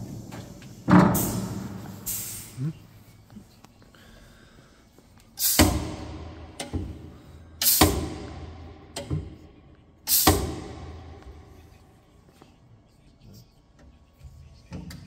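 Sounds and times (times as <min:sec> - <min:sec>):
pneumatic air hisses: 0:00.0 - 0:02.6, 0:05.4 - 0:06.1, 0:07.6 - 0:08.2, 0:10.1 - 0:10.8.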